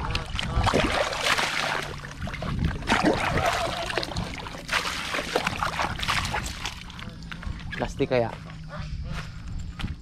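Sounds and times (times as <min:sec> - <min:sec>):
water gushing into a basin: 0:00.5 - 0:06.9.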